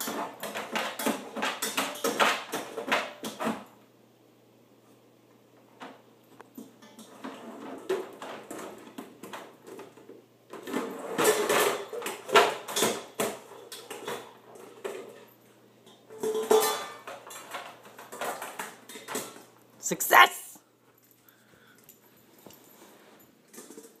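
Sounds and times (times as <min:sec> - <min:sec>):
metal dog bowl clattering: 0:16.1 - 0:19.4.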